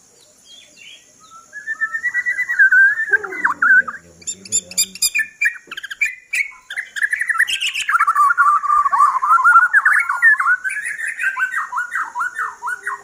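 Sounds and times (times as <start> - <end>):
bird singing fast warble: 0.0 - 13.0.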